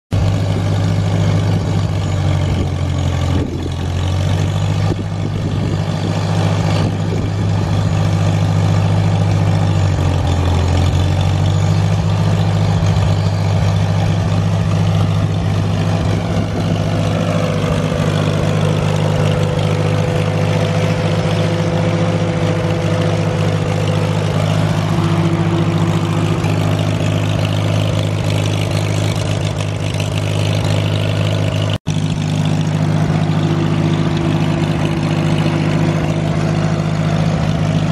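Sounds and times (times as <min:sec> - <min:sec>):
tractor engine running: 0:00.1 - 0:37.9.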